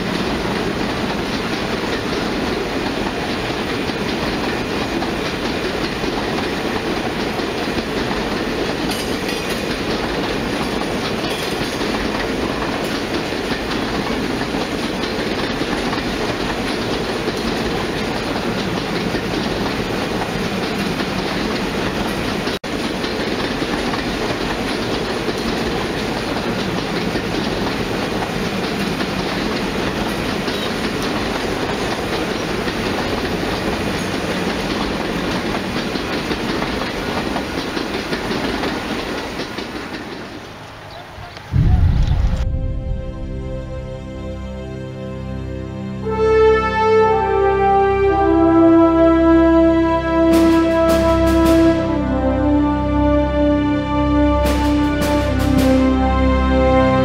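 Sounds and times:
model train wheels clattering on rail: 0.0 - 40.8.

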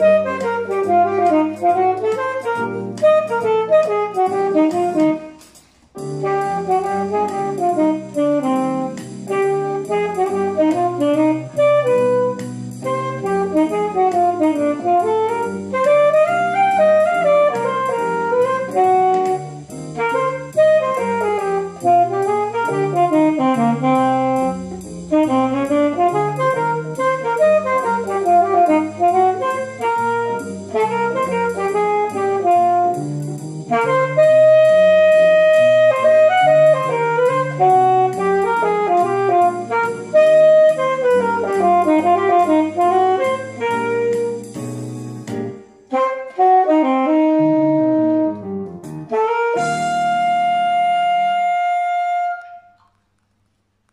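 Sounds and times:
saxophone melody: 0.0 - 53.0.

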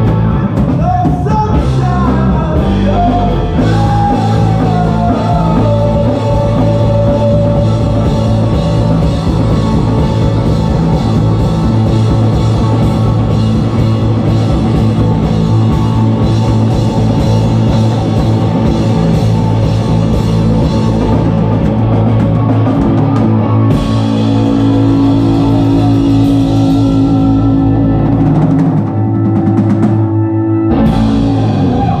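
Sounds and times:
bass guitar: 0.0 - 32.0
distorted electric guitar: 0.0 - 32.0
drum kit: 0.0 - 32.0.

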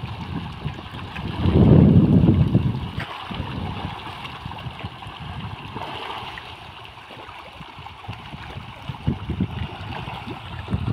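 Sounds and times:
water rushing: 0.0 - 10.9.

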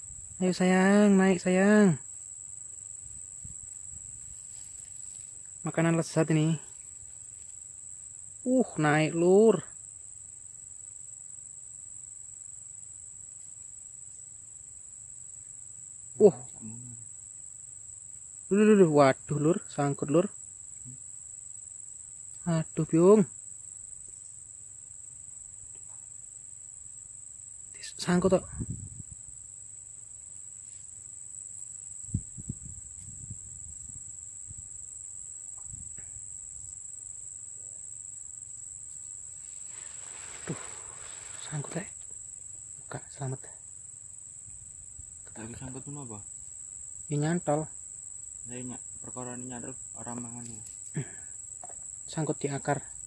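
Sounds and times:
insects trilling: 0.0 - 53.0
thumps and rustles in dry grass: 4.2 - 5.4, 39.6 - 41.6.

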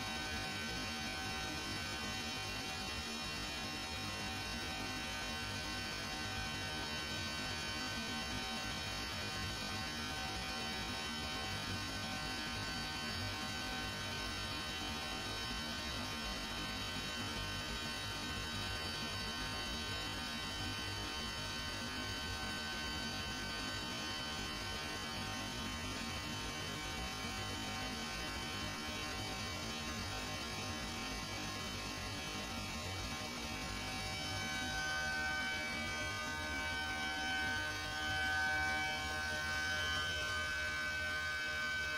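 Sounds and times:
machinery hum with high tones: 0.0 - 41.9.

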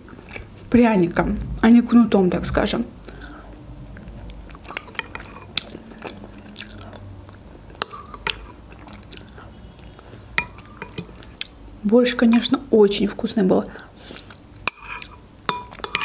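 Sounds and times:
wet chewing and smacking: 3.0 - 11.8, 13.8 - 16.0.

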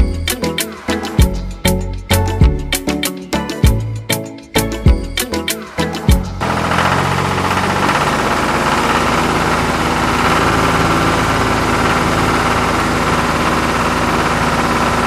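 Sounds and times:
toy tractor motor buzzing: 6.4 - 15.0.

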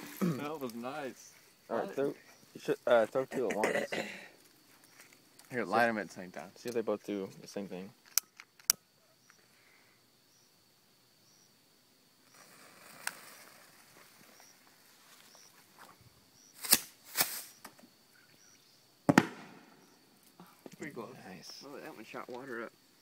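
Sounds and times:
firework fizzing hiss: 12.2 - 14.4, 16.5 - 17.7
firework bangs: 19.1 - 20.0.

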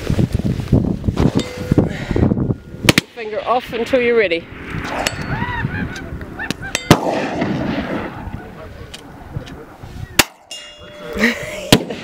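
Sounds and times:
rifle shot with echo: 6.8 - 8.4.

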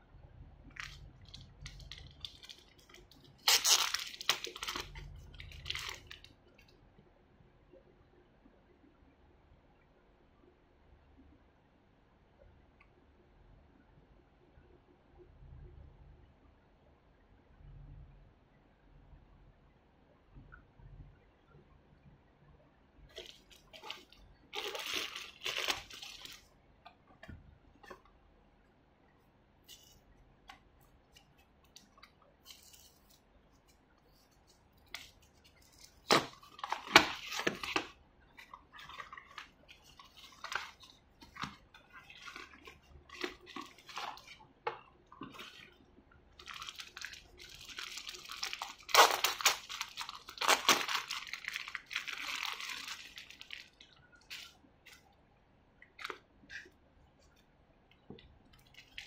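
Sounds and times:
packaging crackling rustle: 0.7 - 6.7, 23.1 - 26.5, 31.1 - 44.5, 46.4 - 55.1, 58.5 - 59.0
plastic packaging snapping: 3.4 - 6.2, 36.0 - 37.9, 46.4 - 53.8.

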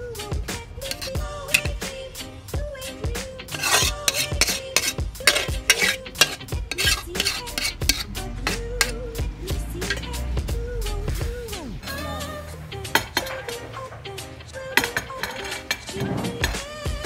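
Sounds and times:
metal spatula scraping pan: 0.8 - 2.1, 3.2 - 9.0, 9.8 - 10.2, 12.9 - 17.0.

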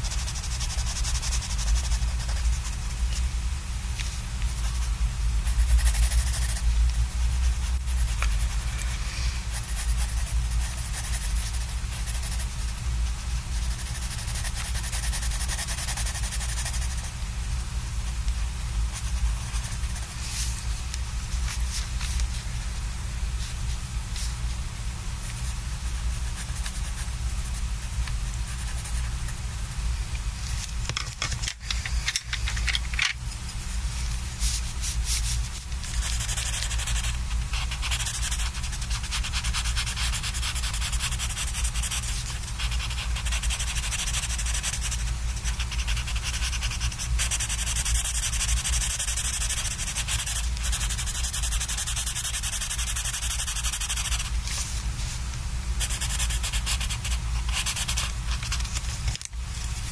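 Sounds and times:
pencil scratching on paper: 0.0 - 3.0, 4.4 - 8.6, 9.5 - 17.1, 18.9 - 20.4, 25.2 - 29.4, 34.4 - 54.4, 55.8 - 58.8.

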